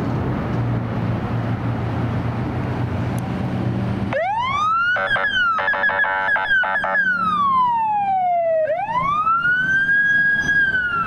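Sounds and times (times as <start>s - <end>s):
siren tone blasts: 4.1s - 11.0s
siren wailing: 4.1s - 11.0s.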